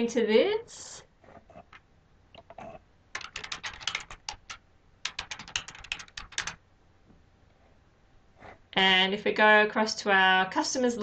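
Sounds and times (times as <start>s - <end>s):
typing on computer keyboard: 3.1s - 6.6s.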